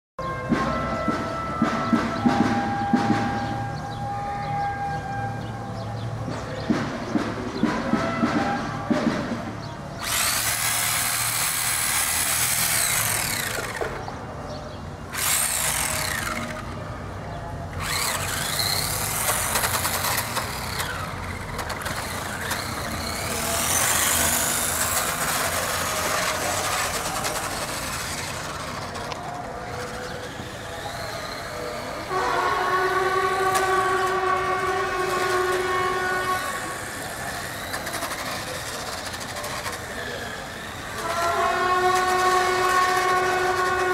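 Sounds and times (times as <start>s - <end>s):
electric motor whining: 10.0s - 14.3s, 15.0s - 43.9s
steady horn-like tone: 32.0s - 37.0s, 40.9s - 43.9s.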